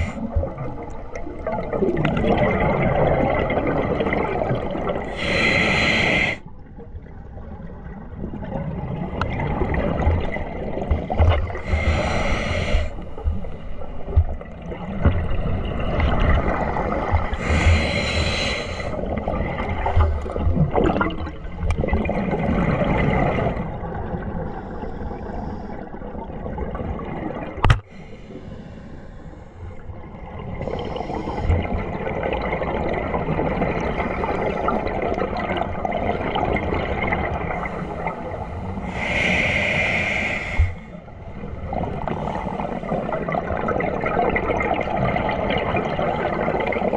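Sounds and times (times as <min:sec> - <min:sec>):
exhaled bubble bursts: 0:00.0 - 0:05.4, 0:18.8 - 0:24.3
underwater bubbling and gurgling: 0:00.0 - 0:46.9.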